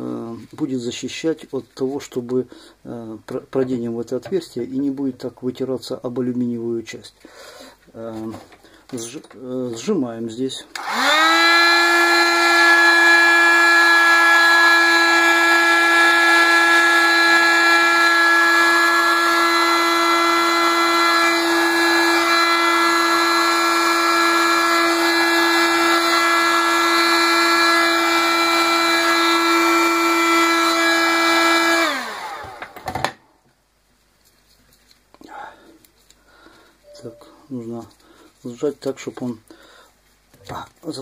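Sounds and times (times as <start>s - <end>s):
heat gun motor and fan hum: 10.7s - 33.1s.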